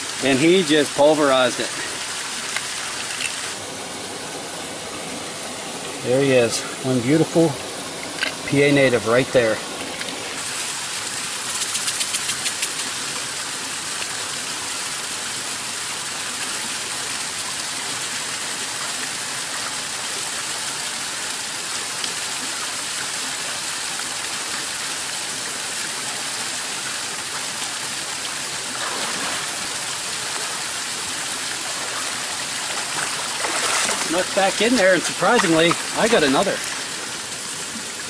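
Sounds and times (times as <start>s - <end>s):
stream rushing over rocks: 0.0s - 38.0s.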